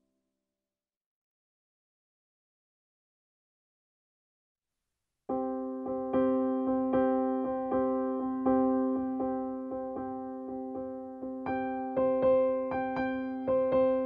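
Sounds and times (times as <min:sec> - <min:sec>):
piano music: 0:05.3 - 0:14.0.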